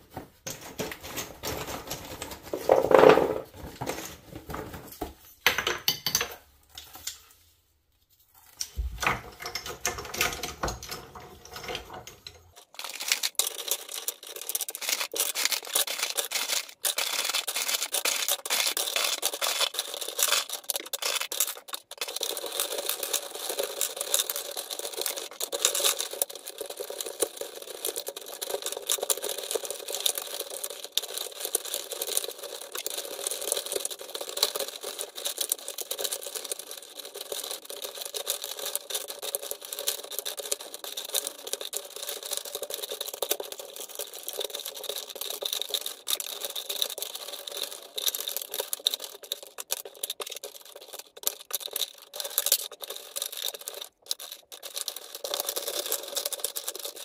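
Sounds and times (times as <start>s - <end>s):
dense rapid crackling: 12.6s - 57.0s.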